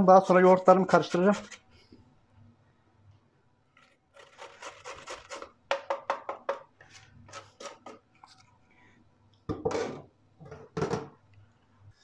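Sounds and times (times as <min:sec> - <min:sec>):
carrot grating on metal grater: 0:00.9 - 0:01.6, 0:04.2 - 0:05.6.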